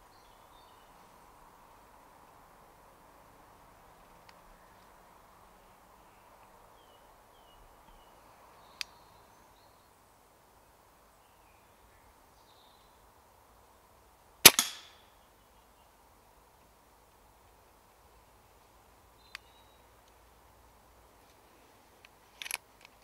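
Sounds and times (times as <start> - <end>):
air rifle shot: 14.4 - 15.0
small click: 19.3 - 20.2.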